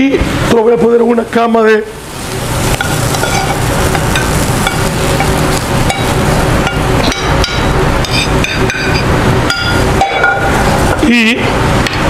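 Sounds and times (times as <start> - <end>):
metal spatula clanking on a pan: 2.7 - 5.3, 5.9 - 11.0.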